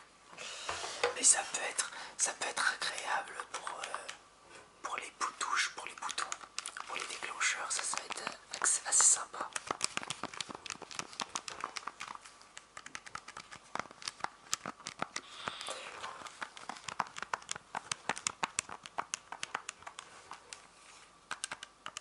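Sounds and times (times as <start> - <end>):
calculator keys clicking: 7.6 - 15.3, 16.2 - 20.6, 21.3 - 22.0.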